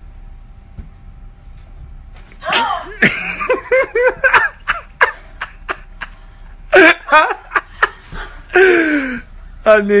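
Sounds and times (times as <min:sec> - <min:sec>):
woman laughing: 0:02.4 - 0:09.2.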